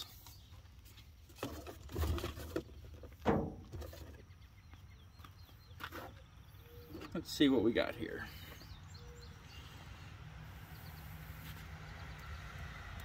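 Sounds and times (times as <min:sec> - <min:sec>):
faint bird chirps: 0:04.1 - 0:11.6.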